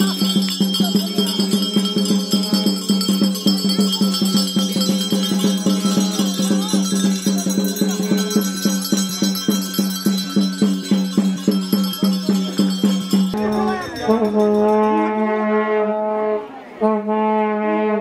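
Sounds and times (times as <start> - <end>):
drum beaten in fast beat: 0.0 - 15.2
metal bells jangling: 0.0 - 15.3
folk band playing: 10.6 - 17.2
long wavering horn note: 13.4 - 18.0.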